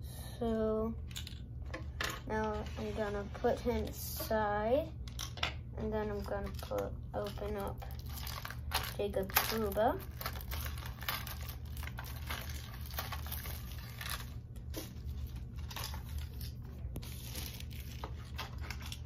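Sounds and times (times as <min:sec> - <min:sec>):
cardboard packaging crinkling and tearing: 0:06.4 - 0:19.0.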